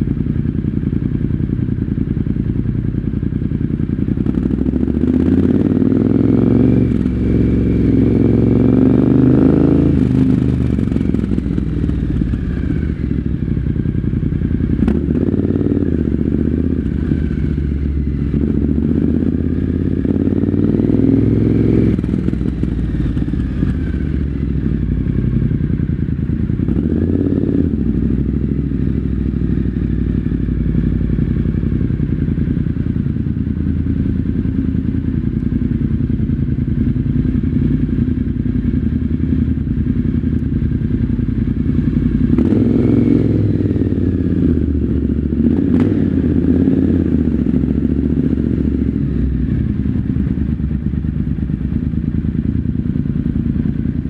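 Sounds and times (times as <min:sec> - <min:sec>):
motorcycle engine idling echoing: 0:00.0 - 0:54.0.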